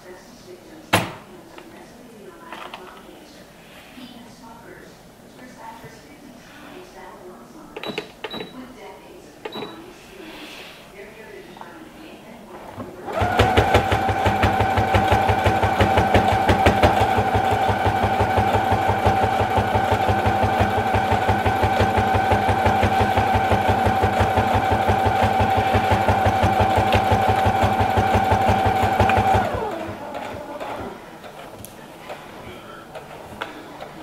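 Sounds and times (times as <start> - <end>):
sewing machine stitching: 13.0 - 34.0.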